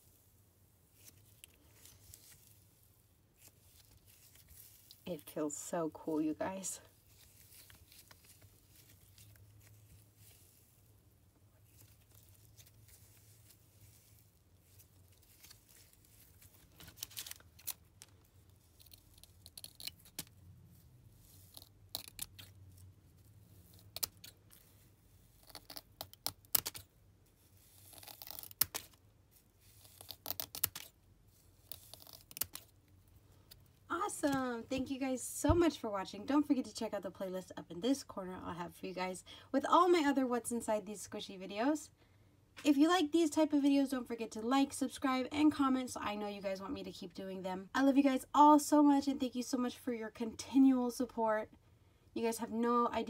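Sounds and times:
crackling of slime: 6.5 - 34.5
scissors snipping slime: 23.7 - 24.4, 25.4 - 26.9.

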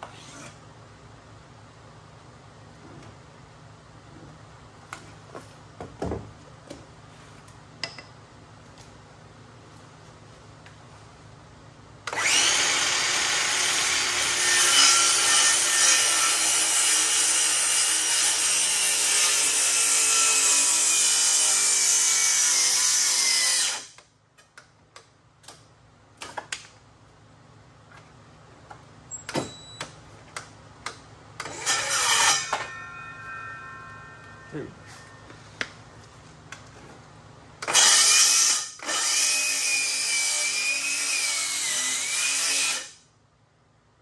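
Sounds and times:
circular saw cutting wood: 12.1 - 23.9, 31.5 - 35.2, 37.7 - 43.0.

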